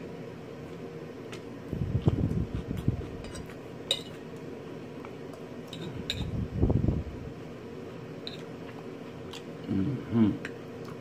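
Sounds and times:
crunchy chewing of lettuce: 0.6 - 6.1
fork clinking on plate: 3.2 - 4.2.

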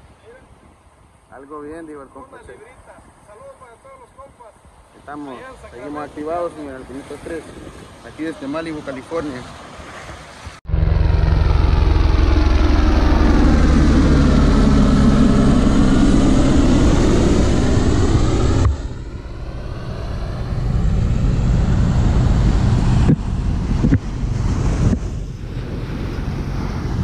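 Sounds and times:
surf washing on beach: 2.2 - 10.6
wind on microphone: 2.6 - 27.0
helicopter rotor and engine: 10.7 - 27.0.

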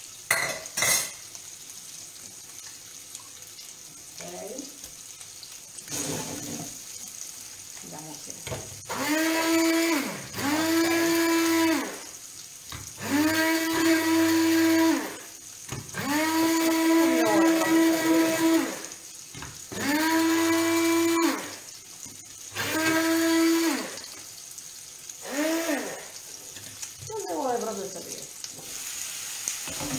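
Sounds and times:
immersion blender motor humming: 8.9 - 12.0, 13.0 - 15.3, 15.9 - 18.9, 19.7 - 21.6, 22.5 - 24.0, 25.2 - 26.1.

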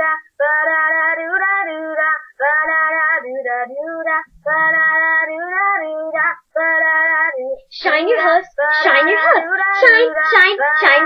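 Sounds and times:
high voice singing held notes: 7.5 - 11.0.

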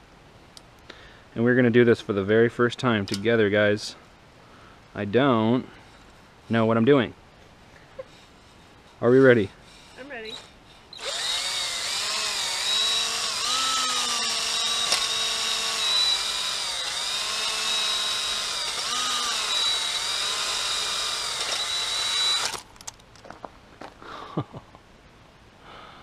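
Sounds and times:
power drill motor whine: 10.0 - 22.8.

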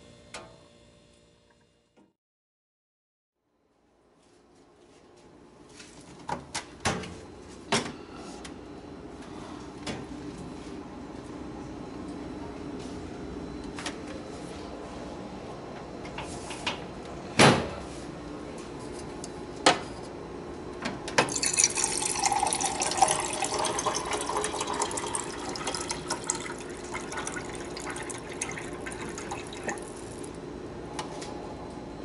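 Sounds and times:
water pouring into a glass: 21.3 - 30.4.

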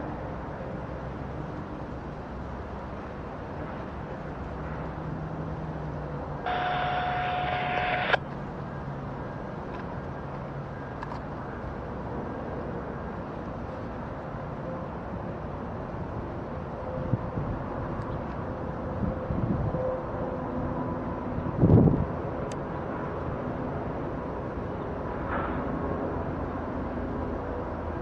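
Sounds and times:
distant locomotives rumbling: 6.3 - 10.8
hissing tone: 6.5 - 8.2.

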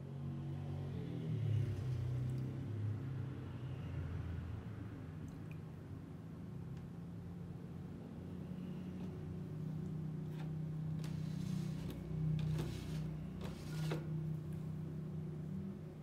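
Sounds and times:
short knocks and scrapes: 10.3 - 14.2.

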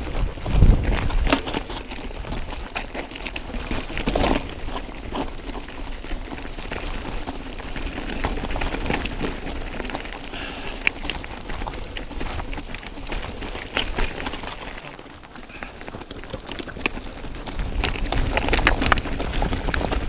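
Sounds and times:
bike rattling and ticking: 0.0 - 20.0
bike tyres crunching on gravel: 0.0 - 20.0.

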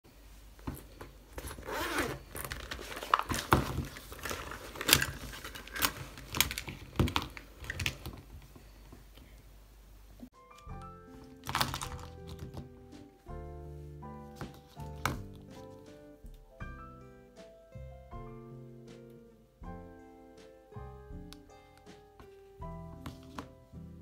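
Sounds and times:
zip pulled open: 1.4 - 3.1
pens and ruler clattering: 2.3 - 8.7.

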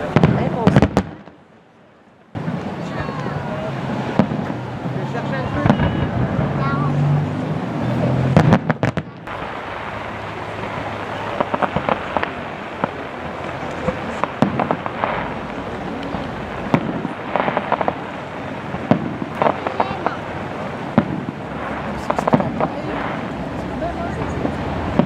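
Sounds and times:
firework shells bursting: 8.3 - 25.0.

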